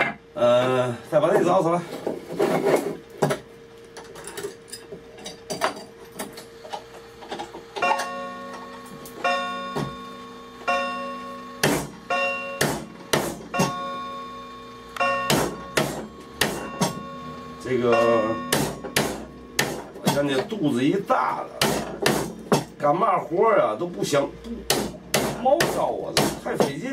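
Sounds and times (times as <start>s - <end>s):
hammer striking chisel into wood: 11.6s - 13.8s, 15.1s - 17.0s, 18.0s - 20.5s, 21.6s - 22.7s, 24.7s - 26.8s.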